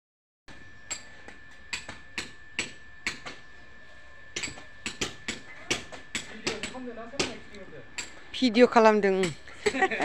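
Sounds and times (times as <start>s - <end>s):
hand tool knocking bricks: 4.4s - 7.4s.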